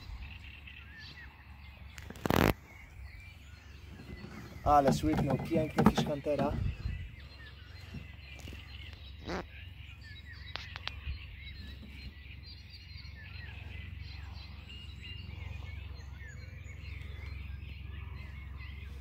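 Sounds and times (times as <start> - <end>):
steady low rumble: 0.0 - 2.0, 6.5 - 19.0
songbirds singing: 0.0 - 19.0
sharp clicks: 10.5 - 11.0.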